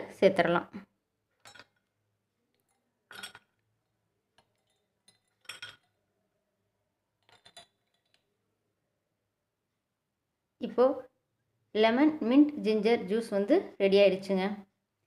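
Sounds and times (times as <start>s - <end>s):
metal spoon clinking glass bowl: 1.4s - 1.8s, 2.7s - 3.6s, 4.4s - 6.0s, 7.2s - 8.2s
ice cubes clinking into glass: 3.1s - 3.5s, 4.6s - 6.0s.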